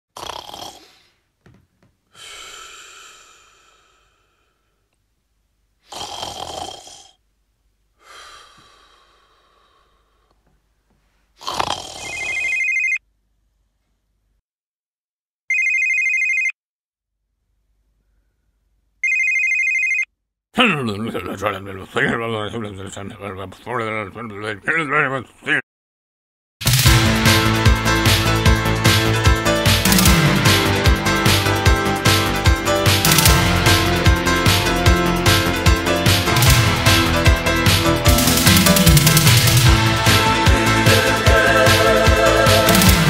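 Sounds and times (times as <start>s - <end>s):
person snoring: 0.1s - 1.3s, 2.1s - 4.6s, 5.8s - 7.2s, 11.4s - 12.5s, 38.1s - 43.0s
mobile phone ringing: 12.2s - 13.0s, 15.5s - 16.6s, 19.0s - 20.1s.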